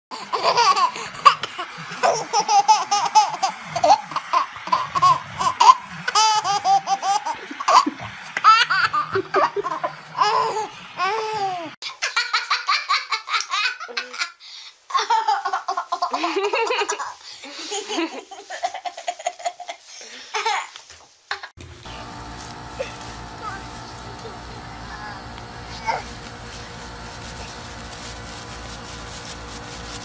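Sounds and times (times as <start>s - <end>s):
baby laughing: 0.1s - 21.5s, 25.7s - 26.2s
girl laughing: 0.2s - 21.5s, 22.7s - 23.2s.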